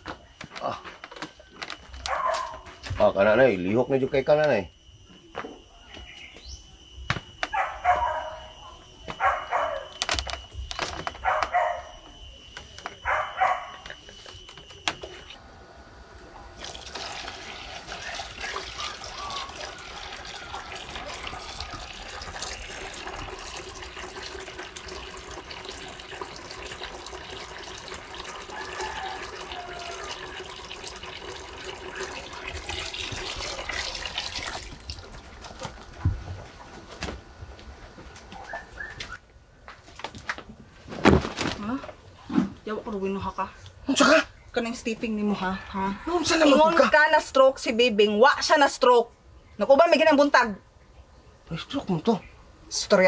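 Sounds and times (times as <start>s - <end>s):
hose water pouring into basin: 16.6s - 35.3s.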